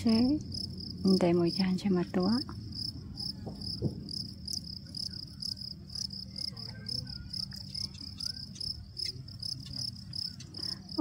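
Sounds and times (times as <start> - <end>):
insect chirping: 0.0 - 11.0
low steady rumble: 0.0 - 11.0.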